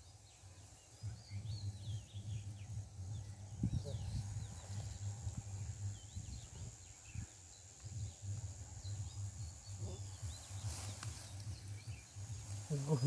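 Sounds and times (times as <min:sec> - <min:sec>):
small birds chirping: 0:00.0 - 0:13.0
steady low rumble: 0:01.0 - 0:13.0
hands scraping soil and dry grass: 0:07.8 - 0:13.0.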